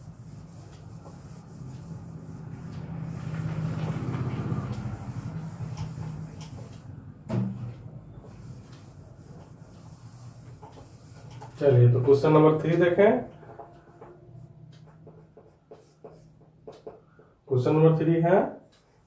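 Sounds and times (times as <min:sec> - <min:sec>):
cloth rubbing on whiteboard: 0:00.0 - 0:06.9, 0:08.2 - 0:11.7.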